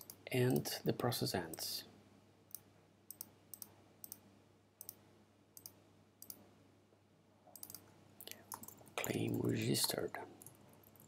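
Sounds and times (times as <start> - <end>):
computer mouse clicks: 0.0 - 0.6, 2.5 - 4.2, 4.8 - 5.0, 5.6 - 6.4, 7.5 - 11.0.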